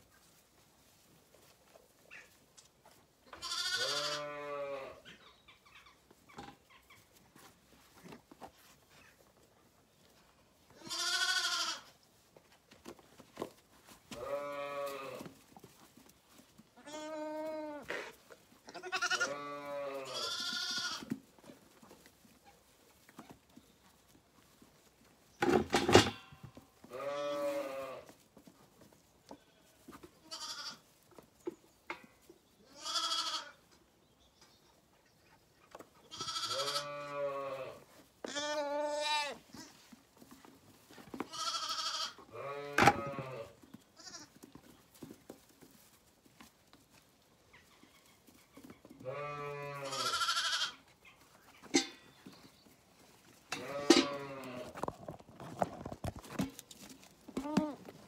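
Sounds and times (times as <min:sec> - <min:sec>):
lambs bleating: 0:03.4 - 0:05.0, 0:10.8 - 0:11.9, 0:14.1 - 0:15.3, 0:16.8 - 0:18.1, 0:18.7 - 0:21.1, 0:26.9 - 0:28.1, 0:29.4 - 0:30.8, 0:32.7 - 0:33.6, 0:36.1 - 0:39.8, 0:41.3 - 0:44.3, 0:49.0 - 0:50.8, 0:53.5 - 0:54.8.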